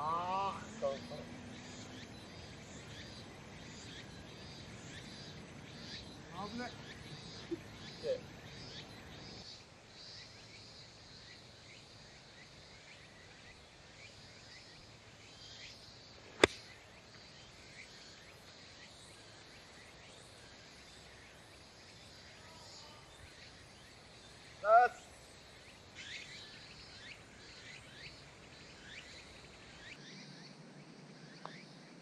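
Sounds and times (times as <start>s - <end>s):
faint chirping: 0.0s - 32.0s
golf club striking ball: 16.4s - 16.7s.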